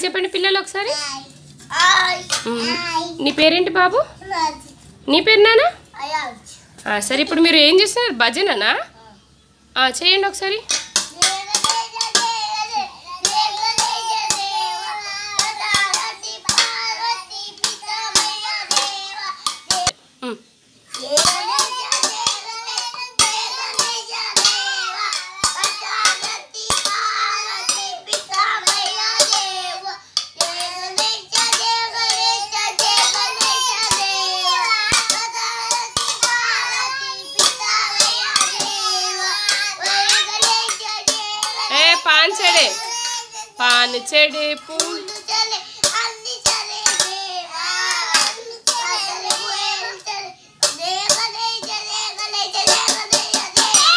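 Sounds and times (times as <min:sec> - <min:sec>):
steel plates clashing: 0:10.7 - 0:19.9, 0:20.9 - 0:53.9
children singing in unison: 0:11.1 - 0:19.9, 0:21.0 - 0:41.8, 0:44.8 - 0:53.9.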